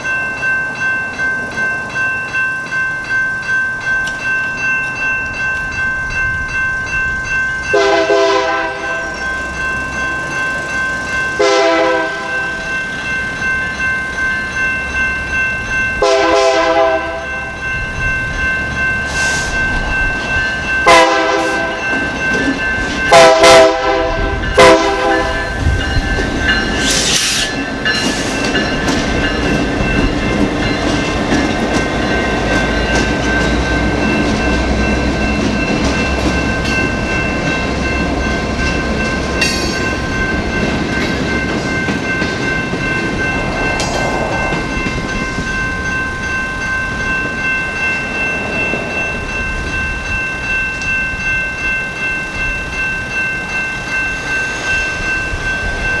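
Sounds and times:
crossing bell ringing: 0:00.0 - 0:56.0
locomotive rumble: 0:04.0 - 0:53.5
train horn blasts: 0:07.8 - 0:09.0, 0:11.4 - 0:12.4, 0:16.0 - 0:17.2, 0:20.8 - 0:21.8, 0:23.1 - 0:25.4
train wheels clattering: 0:18.6 - 0:46.4.

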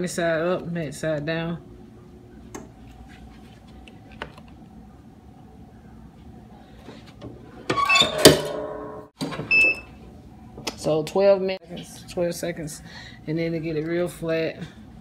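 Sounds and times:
heat press metallic clatter: 0:07.6 - 0:09.5.

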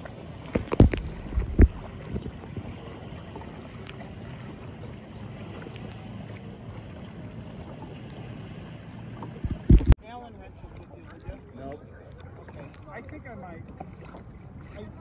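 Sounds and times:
wind on microphone: 0:00.0 - 0:02.8, 0:09.4 - 0:10.0
water wash: 0:00.0 - 0:04.6, 0:05.2 - 0:10.0
loud knocks: 0:09.4 - 0:10.0.

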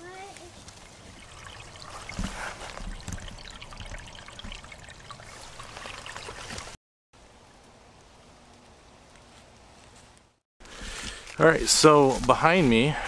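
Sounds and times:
stream trickling over leaves: 0:00.0 - 0:06.8, 0:10.6 - 0:13.0
small water drops splashing: 0:00.3 - 0:06.8.

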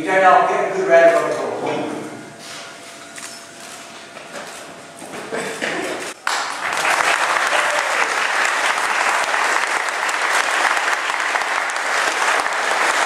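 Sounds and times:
audience applause: 0:06.2 - 0:13.0.

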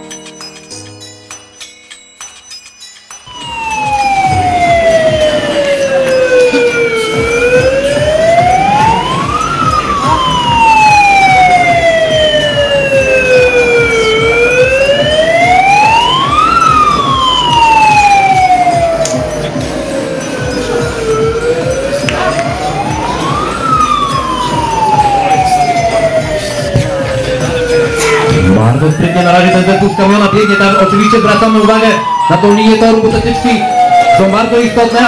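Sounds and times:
siren wailing: 0:03.3 - 0:35.0.

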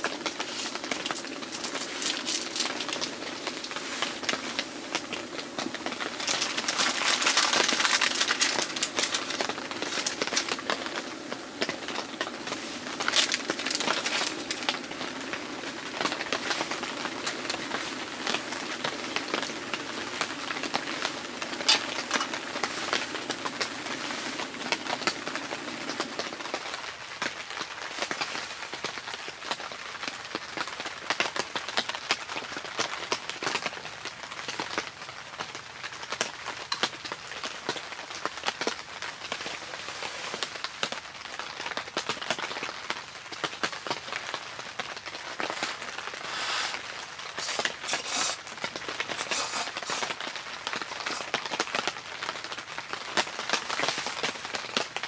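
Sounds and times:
gas stove burner hiss: 0:00.0 - 0:26.8, 0:45.4 - 0:51.5
rain on tent fabric: 0:00.0 - 0:55.0.

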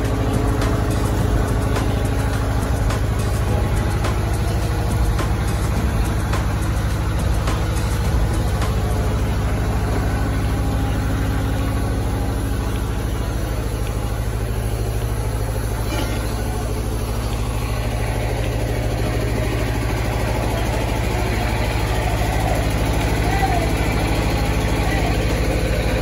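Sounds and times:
diesel engine drone: 0:00.0 - 0:26.0.

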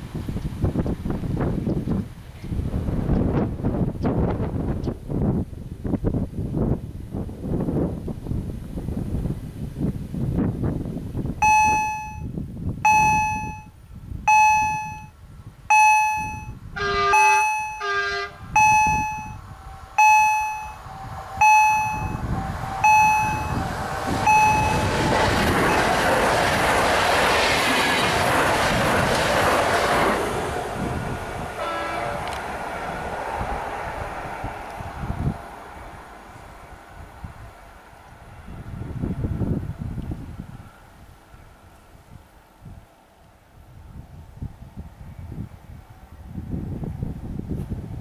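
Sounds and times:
train passing rumble: 0:00.0 - 0:12.2, 0:12.8 - 0:48.0
level crossing warning bell: 0:11.4 - 0:12.3, 0:12.9 - 0:15.1, 0:15.7 - 0:23.6, 0:24.2 - 0:25.0
train horn blasts: 0:16.7 - 0:25.0, 0:31.5 - 0:33.0.

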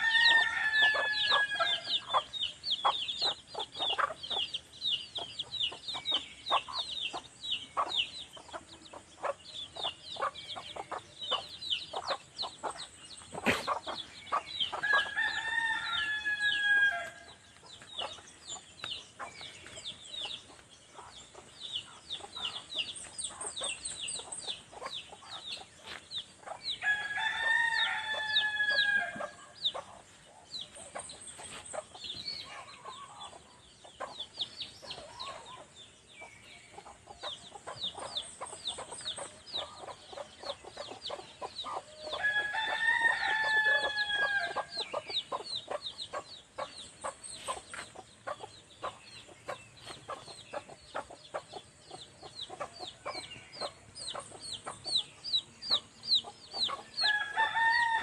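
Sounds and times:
rooster crowing: 0:00.0 - 0:02.0, 0:14.8 - 0:17.3, 0:26.8 - 0:29.4, 0:41.9 - 0:44.8, 0:57.0 - 0:58.0
chicks peeping: 0:00.0 - 0:58.0.

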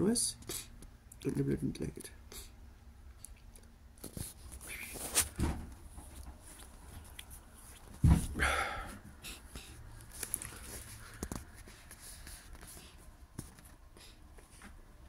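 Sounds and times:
loud thump: 0:05.4 - 0:05.7, 0:08.0 - 0:08.5.

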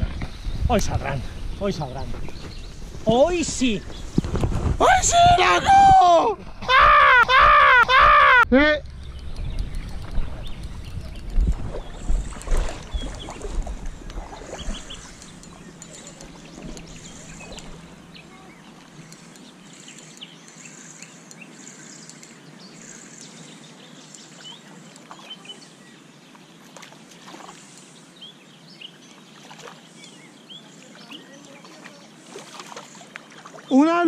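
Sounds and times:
small birds chirping: 0:00.0 - 0:05.6, 0:08.8 - 0:34.0
steady outdoor hiss: 0:00.0 - 0:34.0
faint clicks: 0:18.9 - 0:22.4.

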